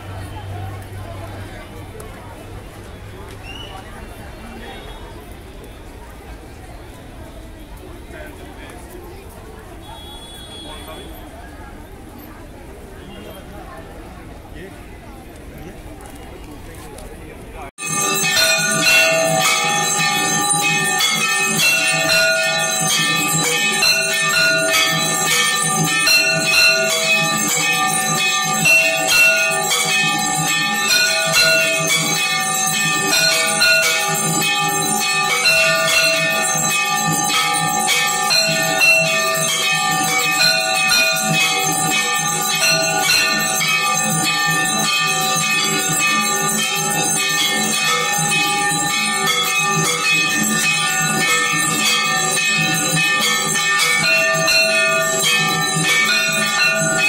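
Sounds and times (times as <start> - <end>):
bells ringing rapidly: 17.8 - 57.0.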